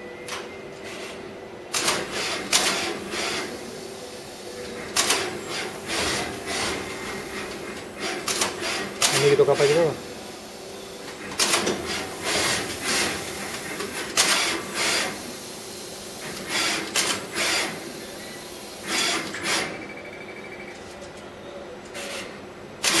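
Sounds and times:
machine hum: 0.0 - 22.9
short bursts of machine noise: 0.2 - 20.8, 21.9 - 23.0.

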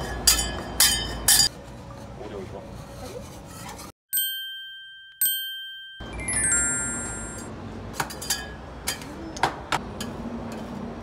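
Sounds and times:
bright ding: 4.1 - 7.5
descending chime notes: 4.2 - 7.5.

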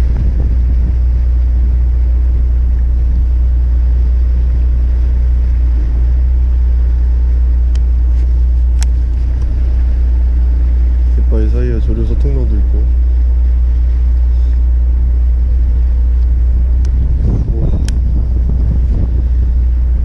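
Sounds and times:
boat engine rumbling: 0.0 - 20.0
faint sharp clicks: 8.7 - 9.5.

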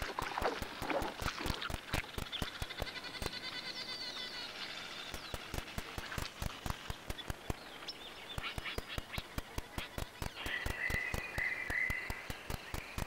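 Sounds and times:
sharp clicks: 0.4 - 3.5, 5.1 - 13.0
warbling whistled bird call: 8.3 - 13.0.

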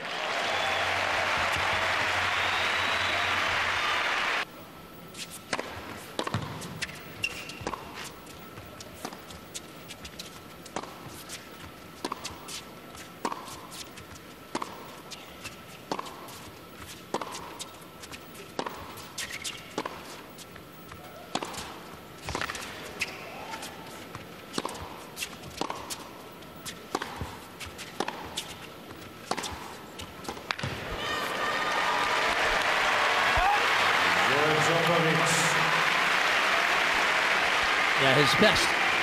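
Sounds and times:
ball bouncing on court: 5.5 - 9.2, 21.3 - 23.2, 26.9 - 27.4, 30.2 - 31.2
rackets striking tennis ball: 5.5 - 9.6, 15.9 - 17.7, 18.5 - 31.0.

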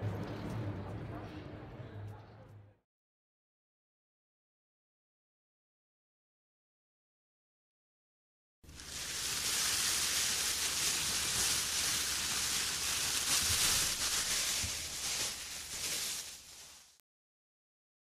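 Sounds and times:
plastic bag rustling: 8.7 - 17.0.

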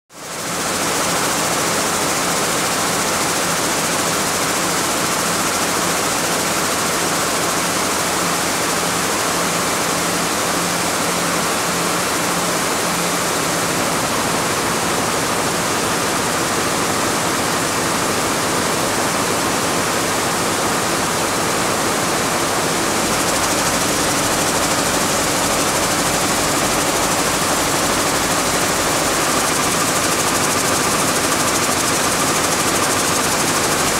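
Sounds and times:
weaving looms hissing and clattering: 23.1 - 33.9.

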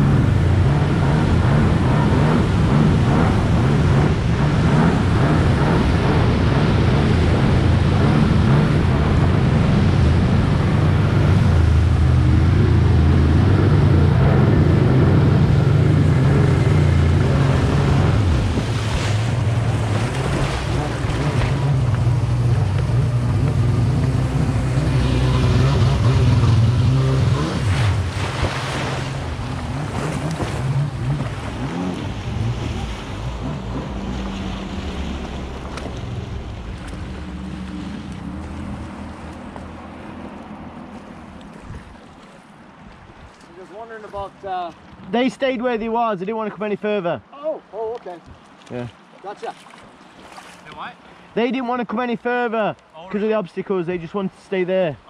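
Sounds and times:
wind on microphone: 0.0 - 39.1
jet ski engine running: 0.0 - 43.1
water rushing and spraying: 0.0 - 45.4, 47.5 - 51.8.

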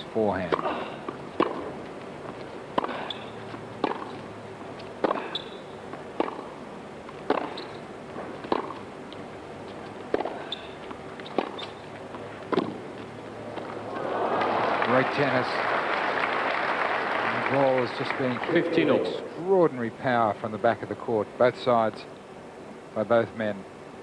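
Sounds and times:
tennis ball struck by racquets: 0.5 - 1.8, 2.7 - 4.2, 5.0 - 6.6, 7.2 - 8.9, 10.1 - 12.9.

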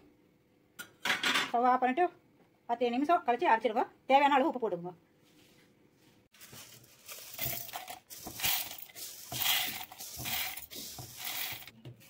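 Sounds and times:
grains rattling into steel jar: 7.0 - 11.7.

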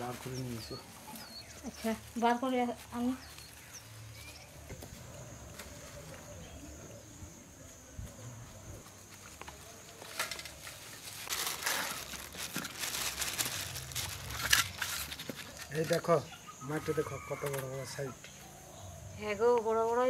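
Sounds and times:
plastic bag rustling and crinkling: 8.9 - 16.2.

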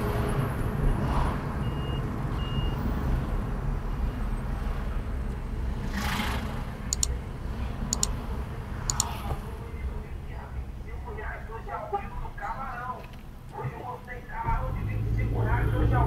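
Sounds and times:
passing vehicle: 0.0 - 10.9, 14.4 - 16.0
car driving through traffic: 0.0 - 16.0.

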